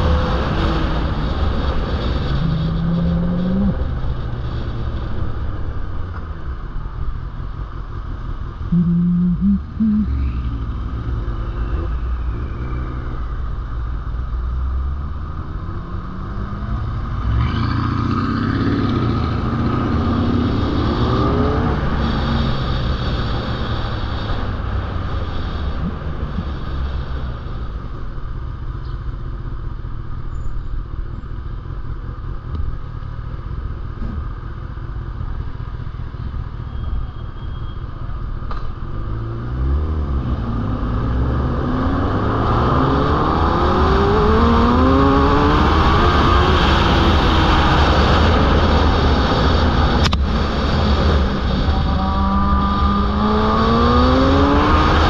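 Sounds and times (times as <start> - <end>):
wind and road noise: 0.0 - 55.0
motorcycle engine running: 5.0 - 11.6.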